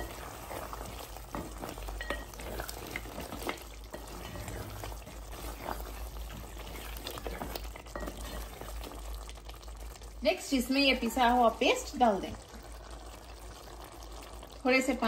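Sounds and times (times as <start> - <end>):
spatula scraping a metal pot: 0.0 - 8.7
meat bubbling in a pot: 0.0 - 15.0.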